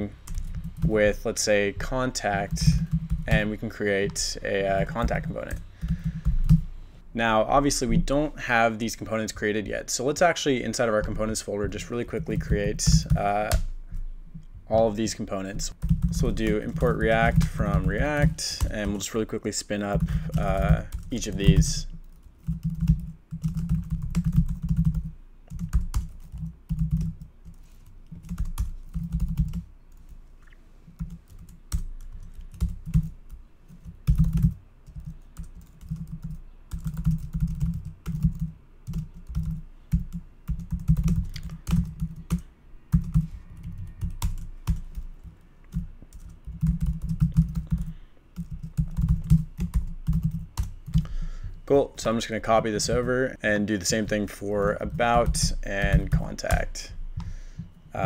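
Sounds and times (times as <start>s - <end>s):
typing on computer keyboard: 5.0s - 6.6s, 19.9s - 29.6s, 31.0s - 51.1s.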